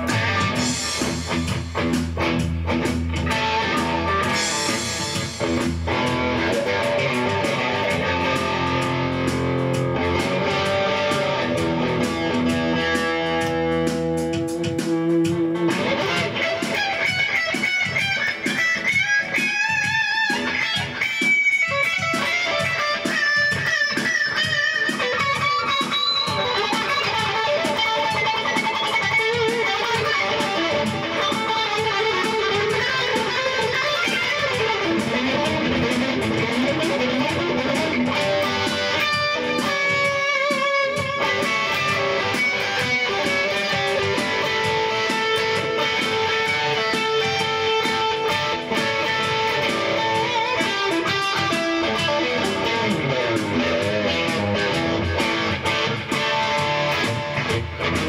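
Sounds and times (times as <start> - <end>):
electric guitar playing rock: 0.0 - 58.0.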